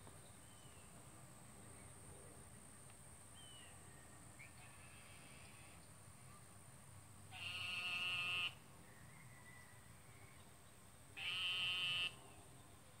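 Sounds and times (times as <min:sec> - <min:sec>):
frog calling: 0:07.3 - 0:08.6, 0:11.2 - 0:12.2.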